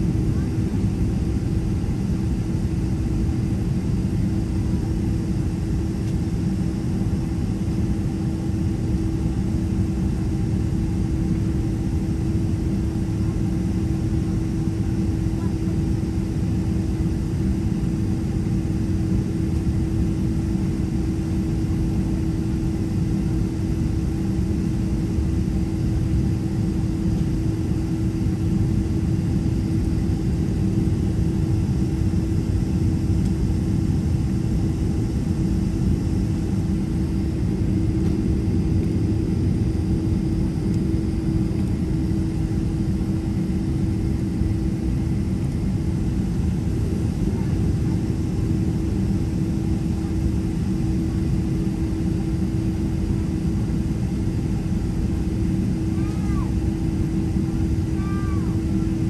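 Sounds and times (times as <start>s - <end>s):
jet engines idling from cabin: 0.0s - 59.0s.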